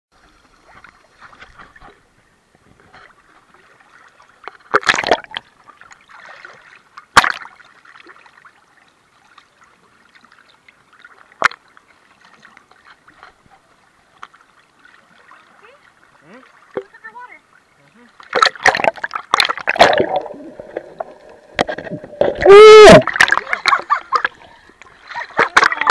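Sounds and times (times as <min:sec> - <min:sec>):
water sloshing and gurgling: 0:00.2 - 0:25.9
water splash: 0:03.5 - 0:08.5, 0:18.1 - 0:25.9.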